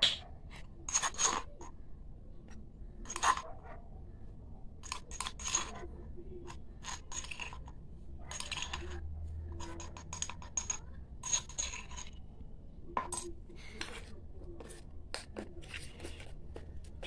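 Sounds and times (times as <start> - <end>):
spoon clinking and scraping bowl: 0.9 - 1.6, 3.0 - 3.4, 4.8 - 5.9, 6.5 - 12.3.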